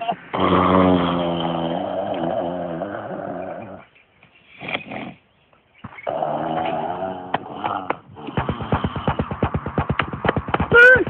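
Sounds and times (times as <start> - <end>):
low vocal moan: 0.3 - 3.8, 6.1 - 9.0.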